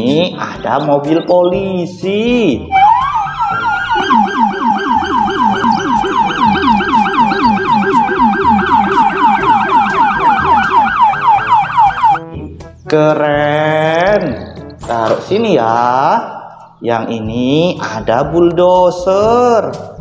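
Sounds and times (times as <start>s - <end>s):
police siren yelping: 2.7s - 12.5s.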